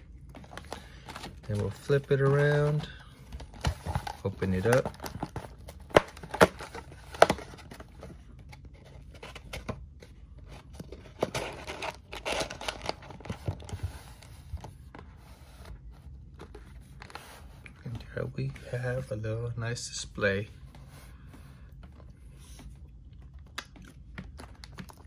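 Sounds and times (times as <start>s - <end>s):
cardboard rustling and scraping: 0.3s - 19.1s.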